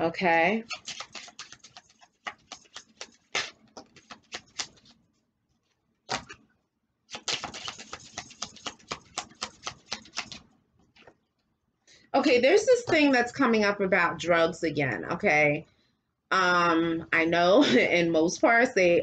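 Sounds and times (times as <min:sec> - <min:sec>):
cards being shuffled: 0:00.6 - 0:05.0, 0:05.6 - 0:06.5, 0:07.1 - 0:11.2.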